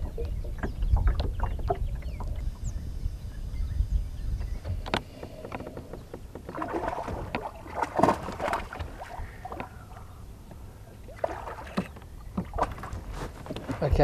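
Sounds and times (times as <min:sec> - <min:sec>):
fish splashing in water: 0:06.5 - 0:10.1, 0:11.1 - 0:13.9.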